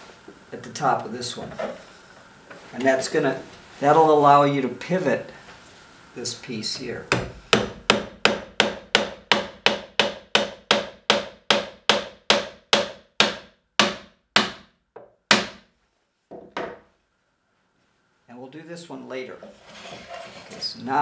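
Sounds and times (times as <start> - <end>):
hammer striking nail into wood: 7.1 - 15.7.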